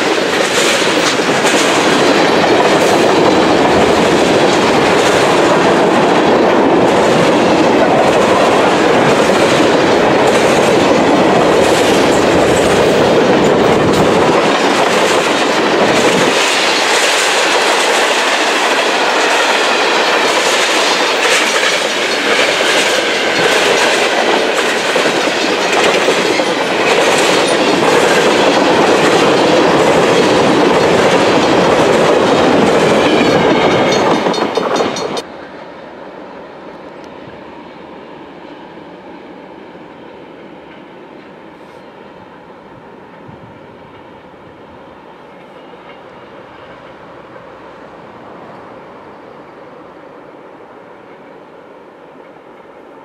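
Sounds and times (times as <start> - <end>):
wheels clacking over rail joints: 0.0 - 35.3
freight train rumbling and rattling: 0.0 - 53.0.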